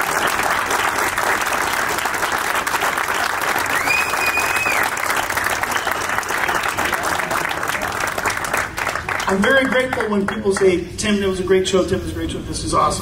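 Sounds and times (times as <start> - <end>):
audience applauding: 0.0 - 10.7
high whistle: 3.7 - 5.0.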